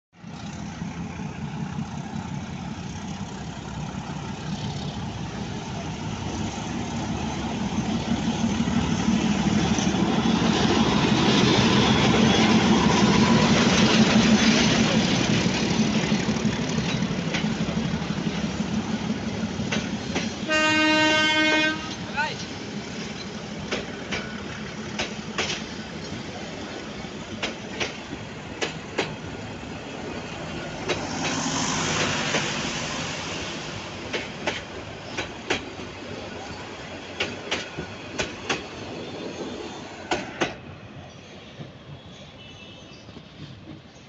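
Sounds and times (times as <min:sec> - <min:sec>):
diesel locomotive engine droning: 0:00.2 - 0:44.0
train wheels clicking over rail joints: 0:00.3 - 0:20.5, 0:21.8 - 0:41.9
train horn: 0:20.4 - 0:22.1.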